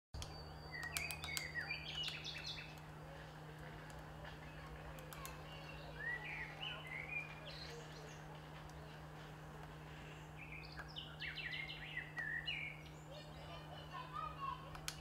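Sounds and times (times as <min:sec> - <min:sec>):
sharp clicks: 0:00.2 - 0:02.9, 0:04.8 - 0:05.6, 0:14.7 - 0:15.0
small birds chirping: 0:00.2 - 0:15.0
steady low hum: 0:00.2 - 0:15.0.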